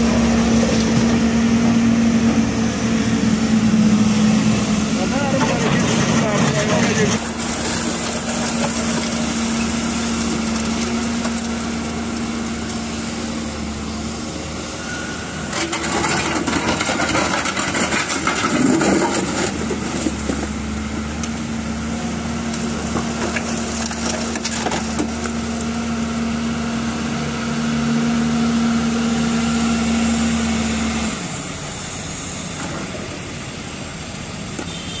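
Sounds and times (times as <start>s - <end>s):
excavator diesel engine running: 0.0s - 35.0s
asphalt chunks clattering into truck: 15.5s - 21.5s, 22.6s - 25.4s.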